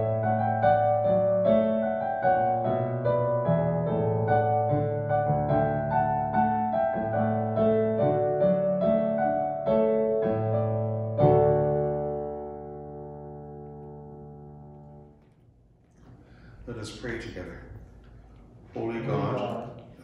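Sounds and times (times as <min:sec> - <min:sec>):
digital piano notes and chords: 0:00.0 - 0:15.2.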